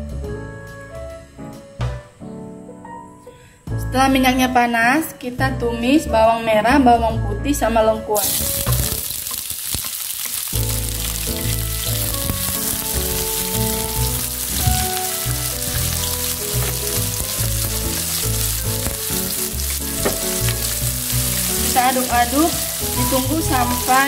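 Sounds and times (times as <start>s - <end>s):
background music: 0.0s - 9.3s, 10.5s - 24.0s
aromatics sizzling in oil: 8.2s - 24.0s
spatula stirring in pan: 8.5s - 24.0s.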